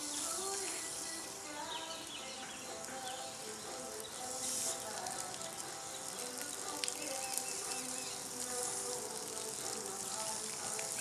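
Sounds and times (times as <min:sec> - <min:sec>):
bird chirps: 0:07.0 - 0:08.3.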